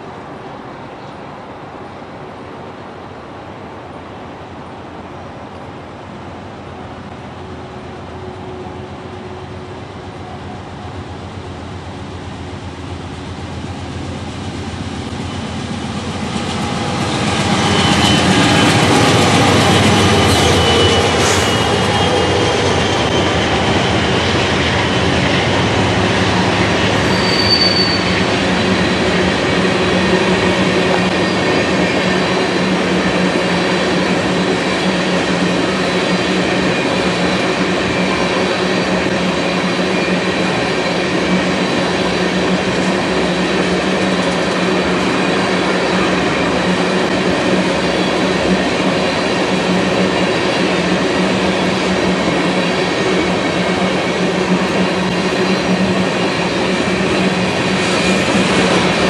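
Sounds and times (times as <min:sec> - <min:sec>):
diesel locomotive passing: 0:03.5 - 0:59.0
train wheels rumbling on rail: 0:03.6 - 0:59.0
wheel squeal: 0:26.8 - 0:28.3.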